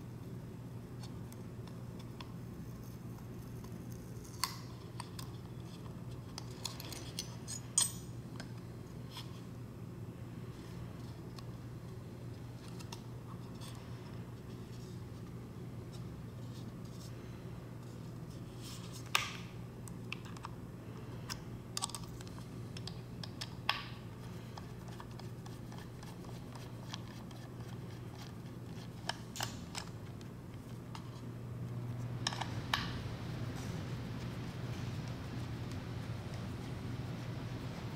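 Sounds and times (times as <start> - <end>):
steady low hum: 0.0 - 37.9.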